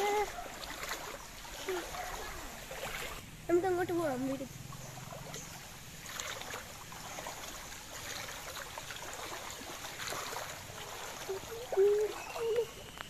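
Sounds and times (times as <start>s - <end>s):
floodwater running and trickling: 0.0s - 13.0s
light water splashes: 0.0s - 13.0s.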